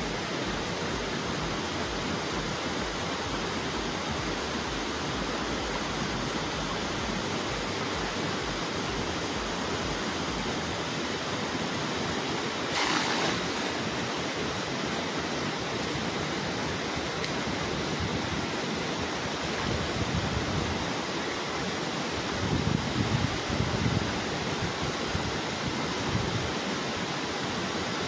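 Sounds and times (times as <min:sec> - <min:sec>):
steady rushing noise: 0:00.0 - 0:28.0
net splashing into water: 0:12.7 - 0:13.9.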